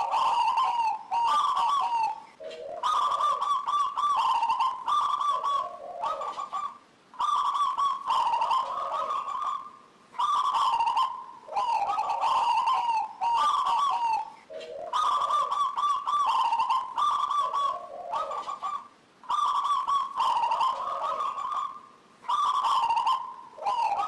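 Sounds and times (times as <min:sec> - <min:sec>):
dove cooing: 0:00.0 - 0:24.0.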